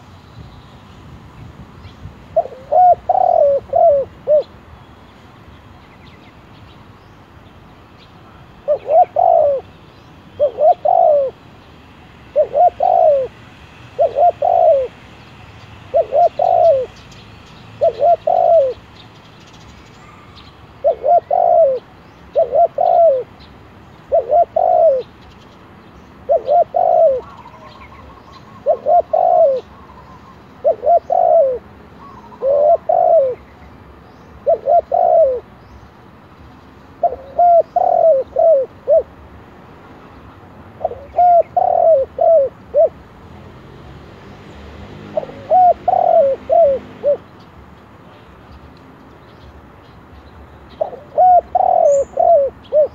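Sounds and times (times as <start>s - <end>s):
dove cooing: 2.4s - 4.5s, 8.6s - 9.7s, 10.4s - 11.4s, 12.3s - 15.0s, 15.9s - 17.0s, 17.8s - 18.8s, 20.8s - 23.4s, 24.1s - 25.1s, 26.2s - 33.4s, 34.4s - 35.5s, 37.0s - 39.1s, 40.8s - 43.0s, 45.1s - 47.3s, 50.8s - 52.9s
small birds chirping: 14.0s - 39.0s, 44.2s - 52.9s.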